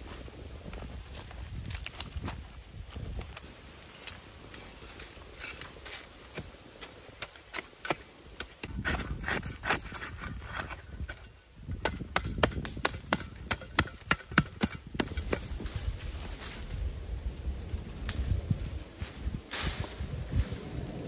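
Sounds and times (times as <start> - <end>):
hand shovel striking stony soil: 5.0 - 15.9.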